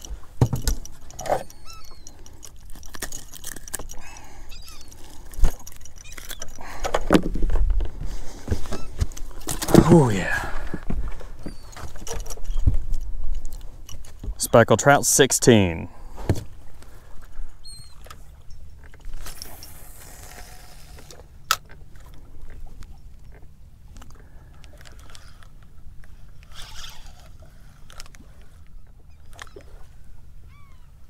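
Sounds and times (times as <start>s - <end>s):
bird calls: 1.2s - 2.4s, 4.0s - 5.3s, 8.6s - 9.0s, 11.4s - 12.8s, 17.6s - 18.8s, 28.8s - 31.0s
fishing reel clicks: 26.4s - 28.2s.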